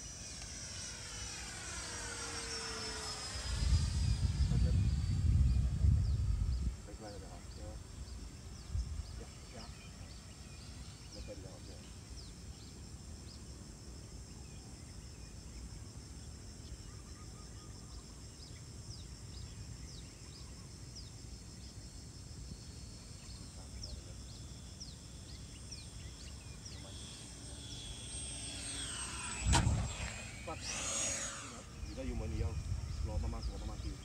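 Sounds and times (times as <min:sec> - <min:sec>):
model jet fan whine: 0:00.0 - 0:34.0
wind rumbling on microphone: 0:03.3 - 0:09.3, 0:29.3 - 0:30.8, 0:31.6 - 0:34.0.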